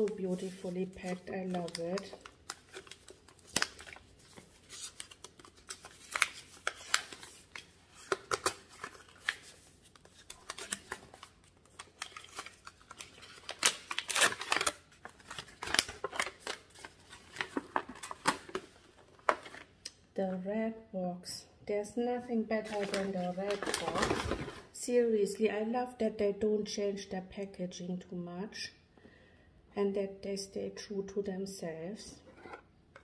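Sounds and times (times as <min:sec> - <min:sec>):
wrapping paper rustling and crackling: 0:00.0 - 0:19.7, 0:22.6 - 0:24.7.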